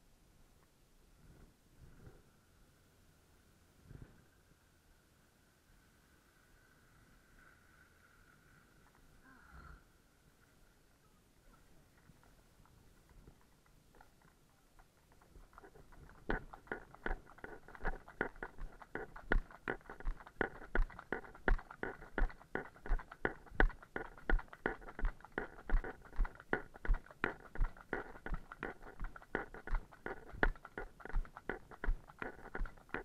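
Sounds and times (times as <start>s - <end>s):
horse hooves clip-clopping on wet road: 14.0s - 33.0s.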